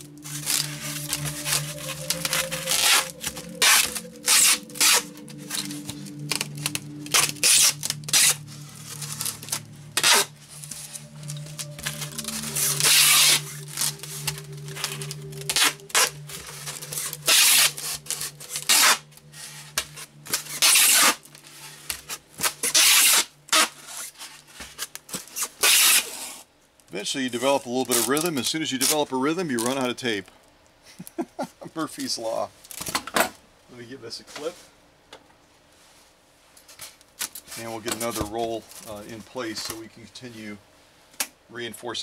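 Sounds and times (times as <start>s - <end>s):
tape ripping off dispenser: 0.0s - 26.4s.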